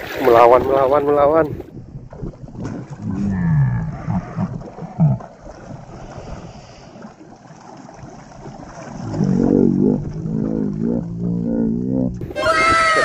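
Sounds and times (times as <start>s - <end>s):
water splashing from thrashing fish: 0.0s - 3.1s, 4.3s - 11.1s
wind on microphone: 0.0s - 6.6s.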